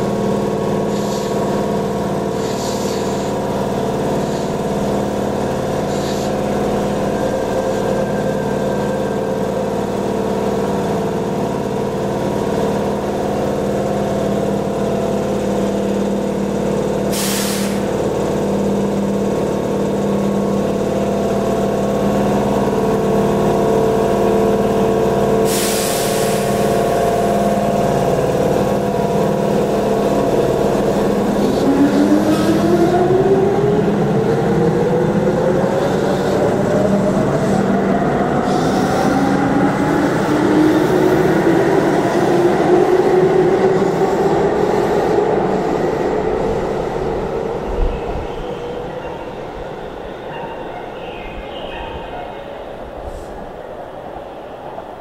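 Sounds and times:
electric train humming: 0.0 - 55.0
compressed air hisses: 2.4 - 3.2, 17.1 - 17.9, 25.5 - 26.7.

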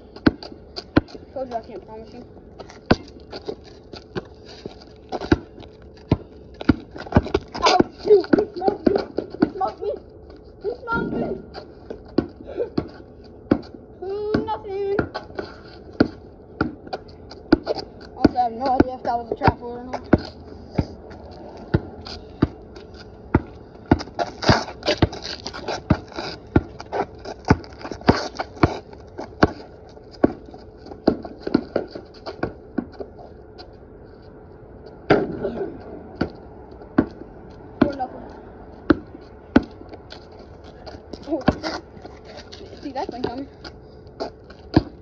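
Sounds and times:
basketball bouncing on concrete: 0.2 - 3.6, 4.2 - 10.0, 10.8 - 33.1, 35.1 - 41.9, 42.8 - 43.5, 44.6 - 45.0.

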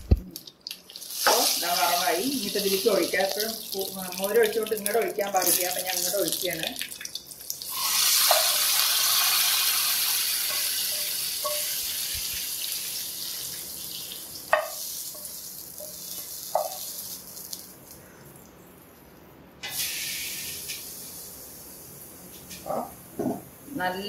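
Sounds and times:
hot oil sizzling: 0.4 - 18.2, 19.6 - 22.6.

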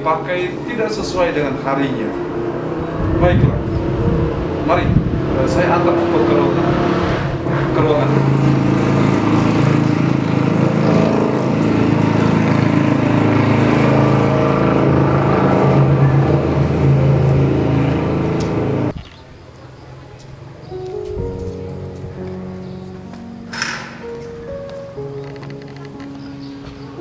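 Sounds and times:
motor engine running loudly: 0.0 - 19.0.

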